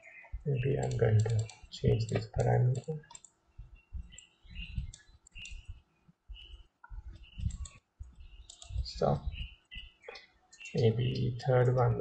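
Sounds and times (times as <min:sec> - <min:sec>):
computer mouse clicks: 0:00.8 - 0:03.4, 0:04.0 - 0:05.8, 0:06.4 - 0:10.7.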